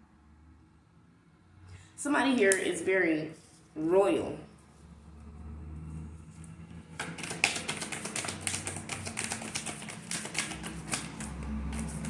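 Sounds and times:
cards being shuffled: 6.9s - 12.0s.

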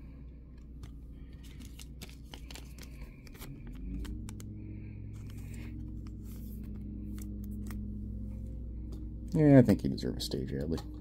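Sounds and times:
steady low hum: 0.0s - 11.0s
trading cards clicking and sliding: 0.6s - 4.5s, 5.1s - 7.9s.

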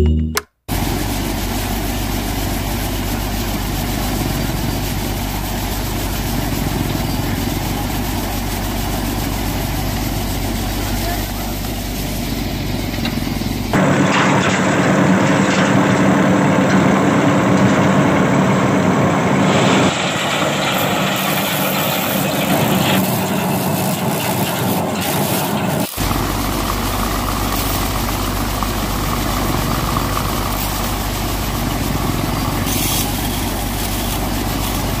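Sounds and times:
small electric motor humming: 20.7s - 35.0s.

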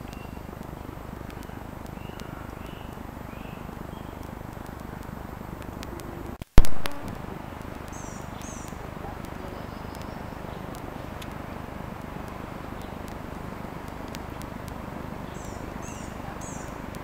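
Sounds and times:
background rush: 0.0s - 17.0s
high bird chirps: 1.3s - 4.3s, 7.9s - 8.8s, 15.2s - 16.9s.

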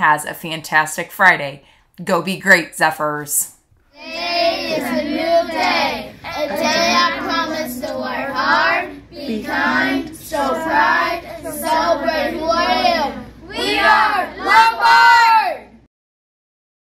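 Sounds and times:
children chanting in unison: 3.9s - 15.8s.

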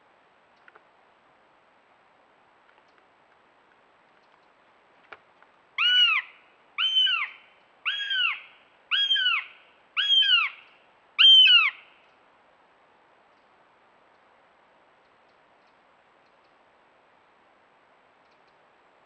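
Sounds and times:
hawk chick wailing calls: 5.8s - 11.9s.

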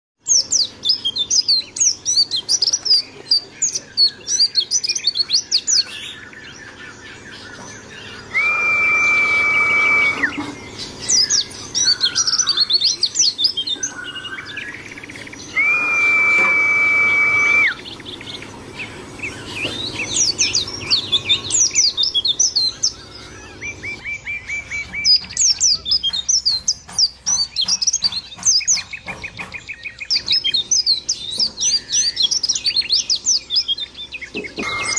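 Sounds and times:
birds twittering: 0.2s - 34.9s
steady whistle-like tone: 8.3s - 10.5s, 15.5s - 17.8s.

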